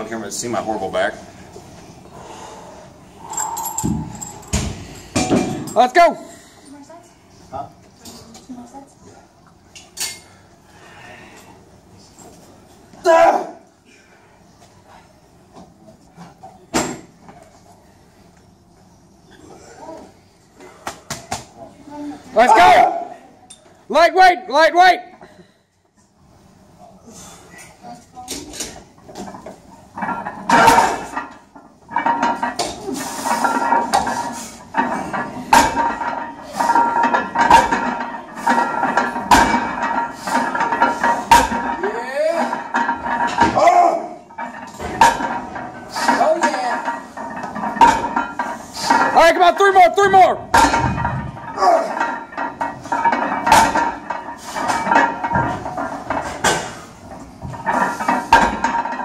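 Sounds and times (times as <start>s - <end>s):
barbell plates clanking: 3.2s - 5.9s, 28.4s - 59.0s.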